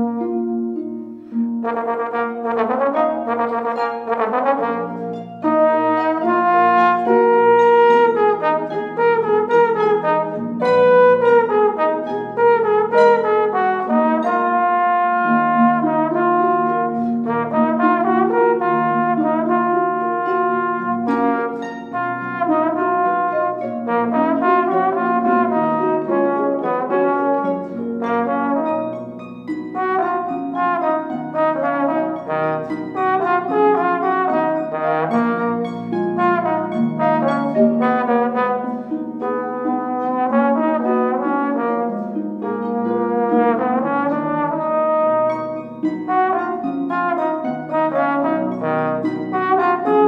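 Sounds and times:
trombone sustained notes: 1.6 - 29.2, 29.8 - 50.0
harp plucking short notes: 28.8 - 40.2.

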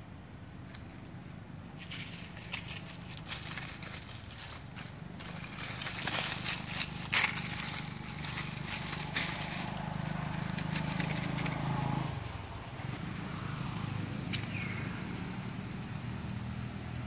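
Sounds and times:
dry leaves crackling: 0.6 - 12.1.

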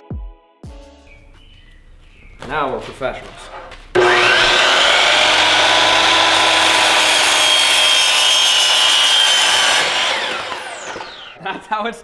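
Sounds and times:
miter saw cutting plastic pipe: 3.4 - 11.4
saw motor winding down: 4.0 - 11.4.

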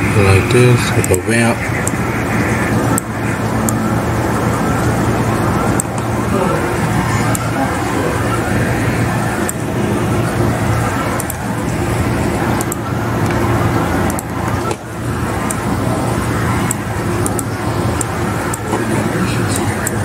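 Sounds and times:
loud rushing noise: 0.0 - 20.0
low hum: 0.0 - 20.0
faint sharp clicks: 12.6 - 13.4, 16.6 - 18.8.

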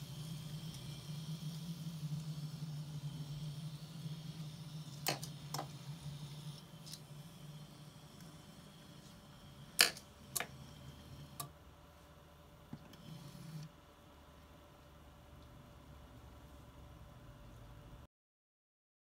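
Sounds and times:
small electric motor whine: 0.0 - 11.5, 12.8 - 13.8.

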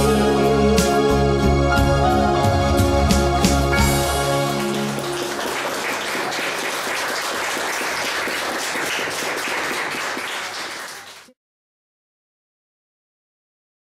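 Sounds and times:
audience applauding: 3.5 - 11.4.

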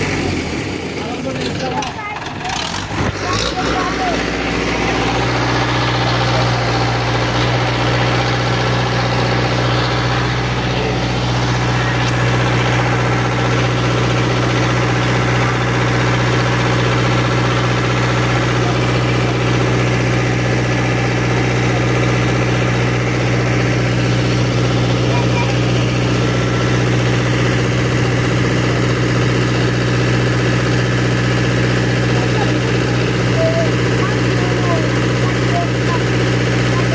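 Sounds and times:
vehicle engine idling: 0.0 - 36.9.

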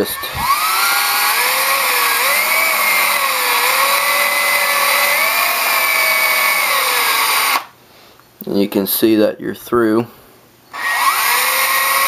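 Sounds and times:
electric drill motor whine: 0.0 - 7.7, 10.7 - 12.0.

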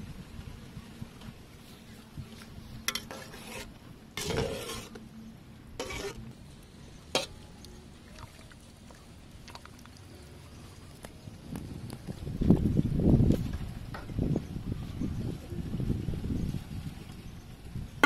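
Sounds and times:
metal spoon scraping a pot: 2.9 - 5.0, 5.8 - 6.3.

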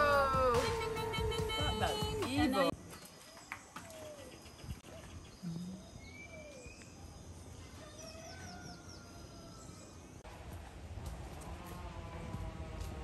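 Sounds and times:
birds calling: 0.0 - 10.2.

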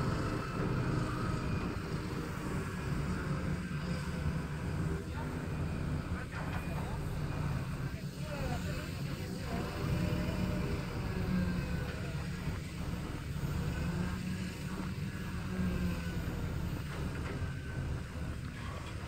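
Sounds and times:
diesel engine rumbling: 0.0 - 19.0.

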